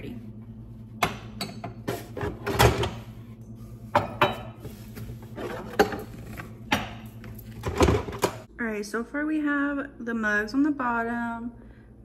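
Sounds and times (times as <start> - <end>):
steady low hum: 0.0 - 12.0
mugs and glasses clinking: 3.9 - 4.6.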